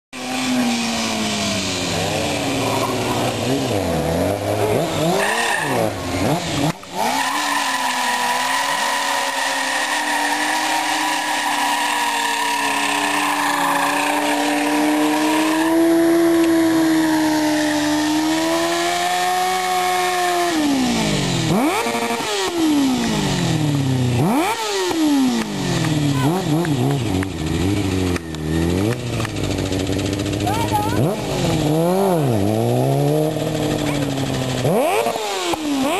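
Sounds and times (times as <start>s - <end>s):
motorcycle engine revving: 0.2s - 35.9s
tyre squeal: 5.0s - 6.0s, 6.9s - 18.2s.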